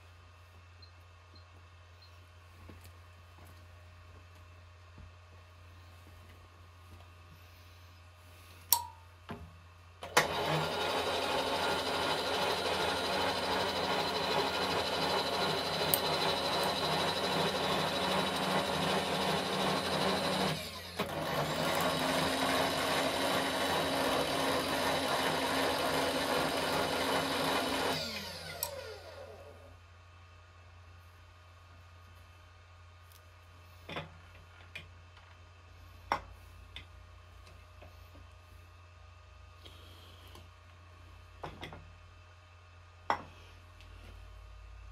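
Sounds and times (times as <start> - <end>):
milling machine power feed running: 10.1 - 29.7.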